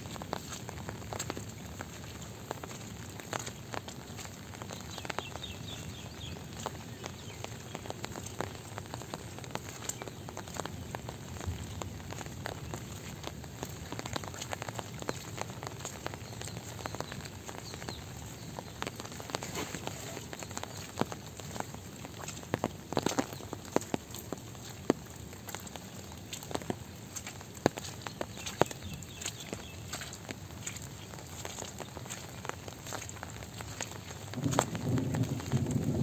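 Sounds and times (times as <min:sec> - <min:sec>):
light rain pattering: 0:00.0 - 0:36.0.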